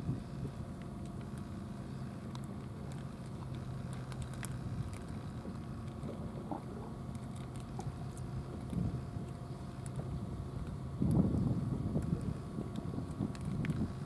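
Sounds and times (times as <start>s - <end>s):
low mechanical hum: 0.0s - 14.0s
cats crunching dry kibble: 0.8s - 14.0s.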